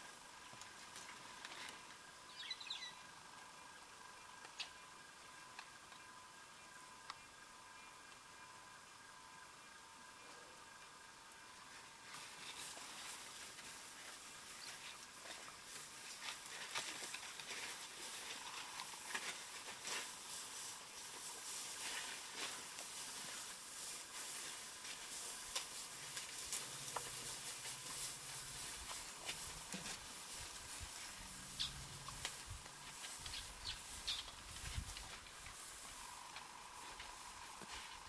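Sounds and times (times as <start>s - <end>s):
faint low hum: 0.0s - 38.0s
dry grass crackling and rustling: 11.6s - 38.0s.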